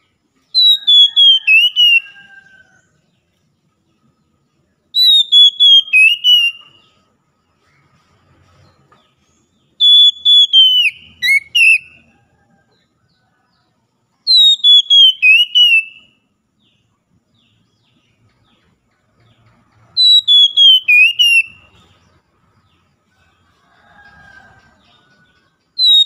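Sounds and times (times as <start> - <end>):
bird whistled song: 0.0 - 2.5, 4.8 - 7.1, 9.5 - 12.1, 14.2 - 16.3, 19.8 - 22.0, 24.8 - 26.0.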